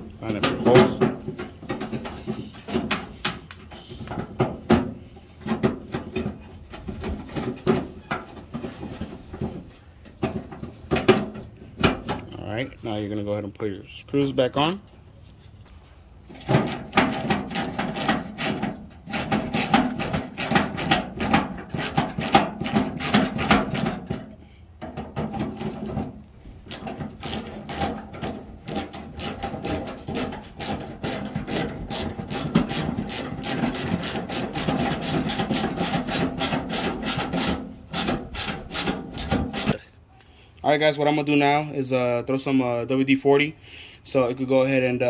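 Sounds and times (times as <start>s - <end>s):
hand ratchet clicking: 16.6s - 23.9s, 26.7s - 39.8s.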